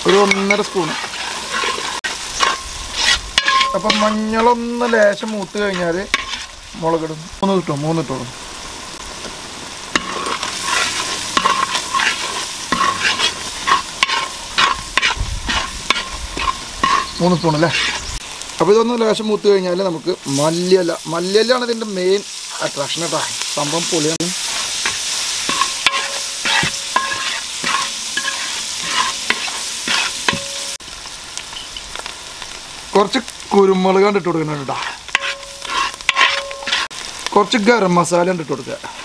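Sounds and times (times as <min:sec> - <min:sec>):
metal spatula scraping pan: 0:00.0 - 0:06.6, 0:09.9 - 0:18.1, 0:24.4 - 0:30.8, 0:34.5 - 0:37.0
onions sizzling in hot oil: 0:00.0 - 0:39.0
spatula clinking against pan: 0:03.4 - 0:04.1.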